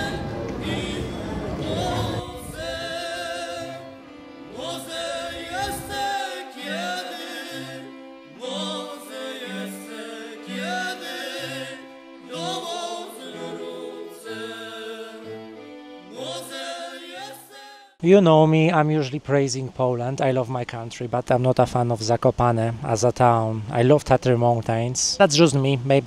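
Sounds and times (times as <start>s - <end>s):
low rumble: 0.0s - 3.0s
several voices singing: 0.0s - 18.0s.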